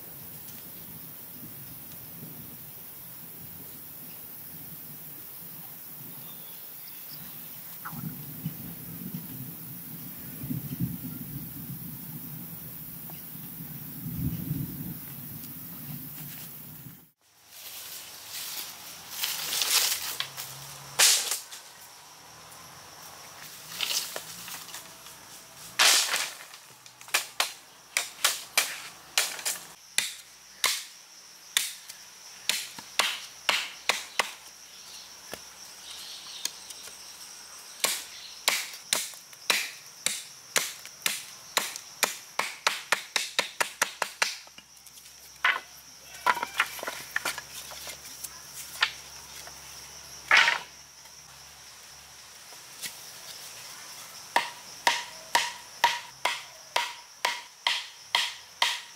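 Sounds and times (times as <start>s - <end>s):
high insect drone: 0.0s - 58.9s
wood chopping: 27.1s - 30.9s, 31.6s - 31.8s, 32.5s - 34.4s, 37.8s - 44.6s, 54.4s - 58.9s.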